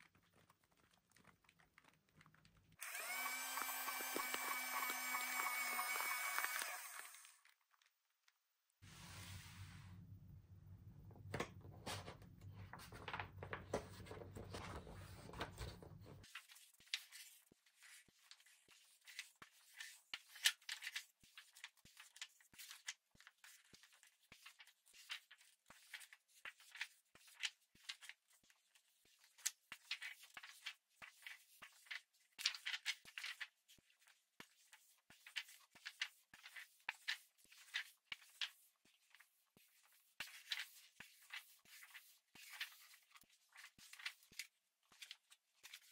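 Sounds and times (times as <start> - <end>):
paper pages rustling: 0.0 - 9.1, 11.4 - 45.9.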